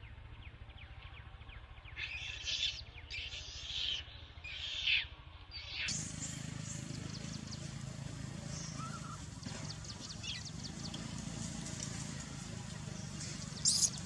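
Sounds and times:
baby monkey raspy cries: 13.6s - 14.0s.

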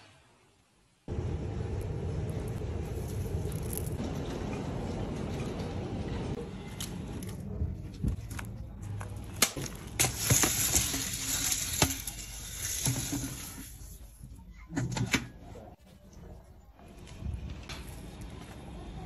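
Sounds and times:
kernels pouring with rattling hiss: 10.0s - 14.0s.

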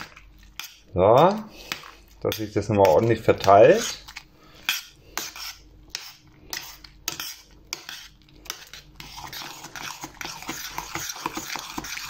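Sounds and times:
spoon scraping a metal pot: 4.6s - 12.0s.

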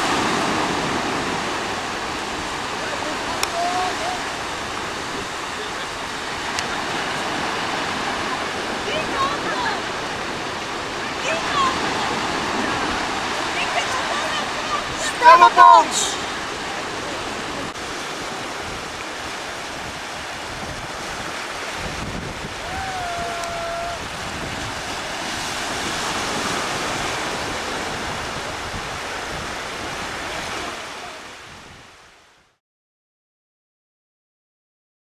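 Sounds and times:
sea surf washing onto beach: 0.0s - 32.4s
wind buffeting microphone: 16.1s - 32.2s.

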